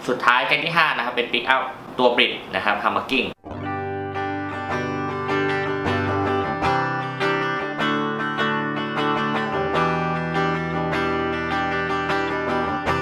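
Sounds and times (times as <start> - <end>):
clean electric guitar chords: 3.4 - 13.0.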